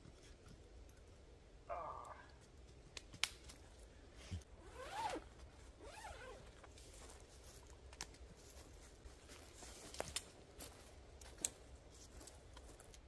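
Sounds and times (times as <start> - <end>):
tent fabric rustling and clicks: 4.2 - 13.0
zipper being pulled: 4.6 - 5.2, 5.8 - 6.4.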